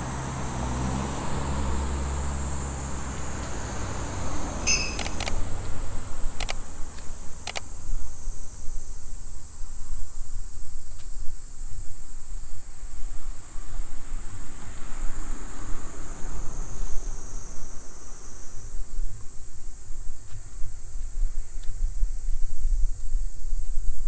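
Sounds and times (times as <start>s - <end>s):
sharp clicks: 4.7s - 5.4s, 6.4s - 6.6s, 7.4s - 7.7s.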